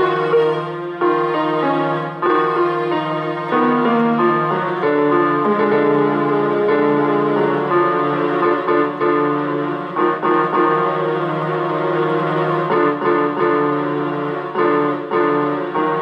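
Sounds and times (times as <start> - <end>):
keyboard chords: 0.0 - 16.0.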